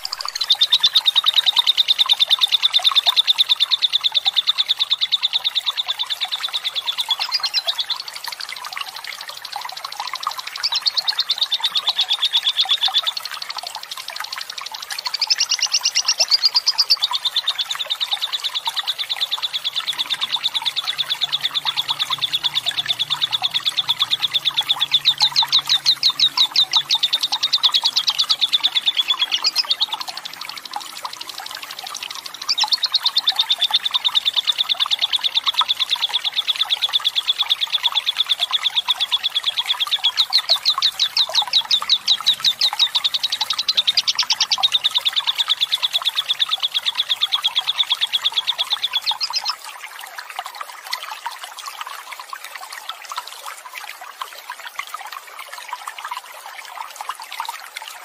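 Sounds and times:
water trickling: 0.0s - 58.0s
lovebird trilling chatter: 15.0s - 17.6s, 18.6s - 30.1s.

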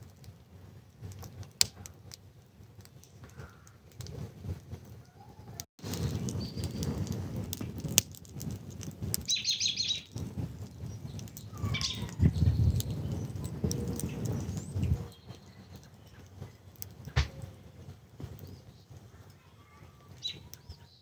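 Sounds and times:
wood fire crackling: 0.0s - 21.0s
low rumble: 5.8s - 18.4s
bird chirping trill: 6.0s - 6.9s, 9.3s - 16.8s.

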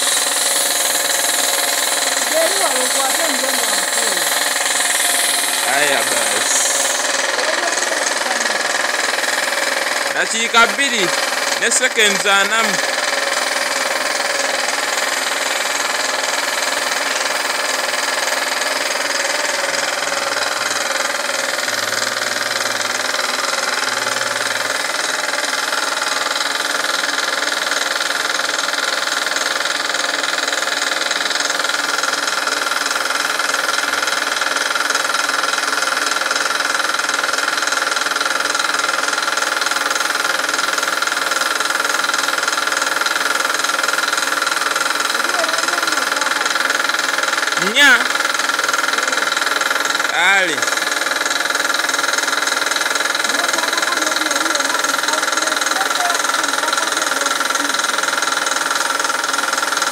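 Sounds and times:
spray gun hissing: 0.0s - 26.9s
air compressor running: 0.0s - 59.9s.

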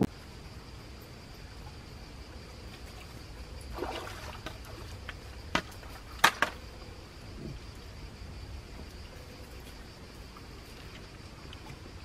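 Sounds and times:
faint high insect hum: 0.0s - 12.0s
kayak paddle clacking on pebbles: 4.4s - 6.6s.

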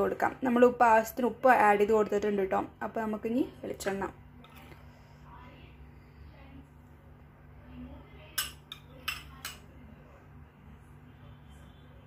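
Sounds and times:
metal spoon clinking glass bowl: 8.4s - 9.6s.

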